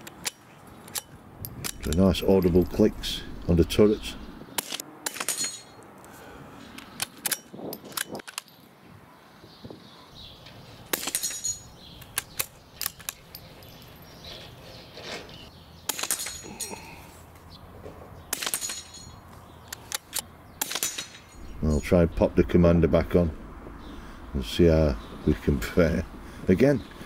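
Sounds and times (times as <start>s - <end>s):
rifle shots: 20.6s - 21.2s.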